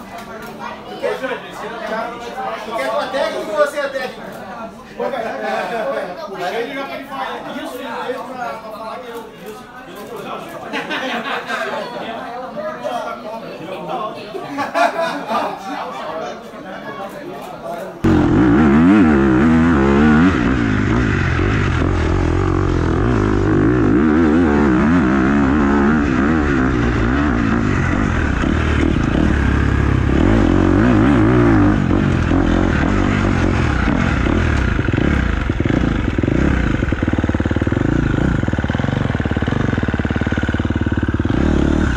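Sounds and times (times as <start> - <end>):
motorcycle engine revving: 18.0 - 41.9.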